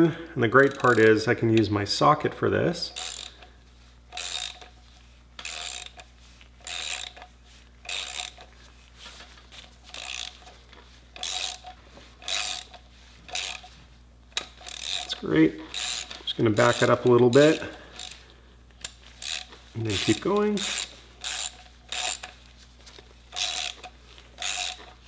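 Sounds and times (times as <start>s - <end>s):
socket ratchet clicking: 0.5s - 1.2s, 2.9s - 3.5s, 4.1s - 4.8s, 5.4s - 8.5s, 9.9s - 10.5s, 11.2s - 13.7s, 14.3s - 22.4s, 23.3s - 25.0s.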